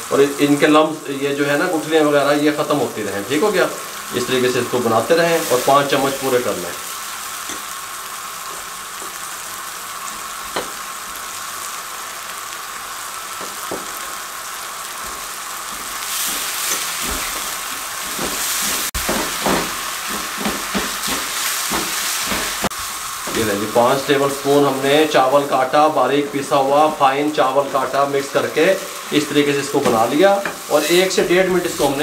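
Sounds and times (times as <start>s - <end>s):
batter sizzling in a frying pan: 0.0s - 32.0s
spatula scraping and tapping pan: 15.0s - 23.5s.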